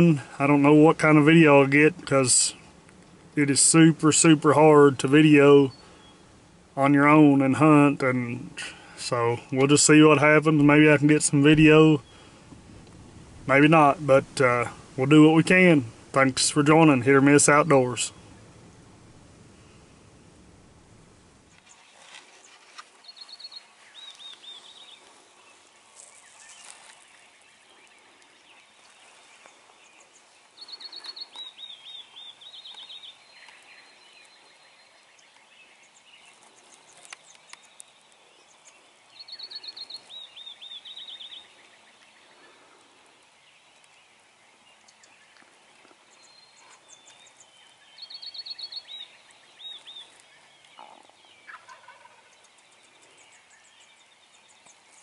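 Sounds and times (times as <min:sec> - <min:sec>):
faint bird calls: 0:03.7 - 0:12.6, 0:21.5 - 0:55.0
bird trilling song: 0:05.2 - 0:06.3, 0:21.5 - 0:42.6, 0:43.3 - 0:55.0.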